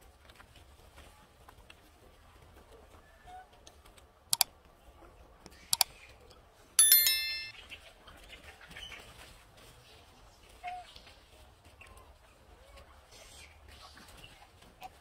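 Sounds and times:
bright bell chime: 6.8 - 7.6.

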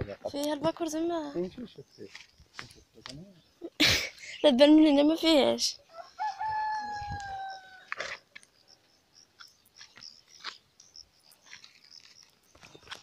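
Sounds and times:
rooster crowing: 5.9 - 8.0.

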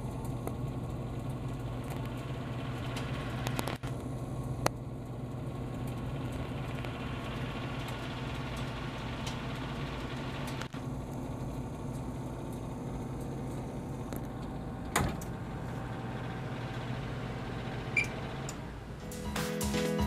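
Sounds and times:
oven fan humming: 0.0 - 20.0.

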